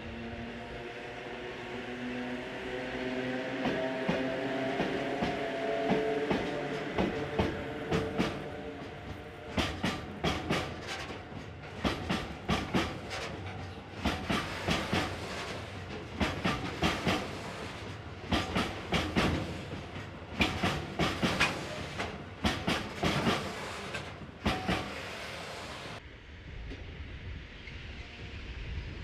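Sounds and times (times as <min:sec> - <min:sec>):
train rolling rumble: 0:00.0 - 0:29.0
train wheels clicking over rail joints: 0:03.6 - 0:26.0.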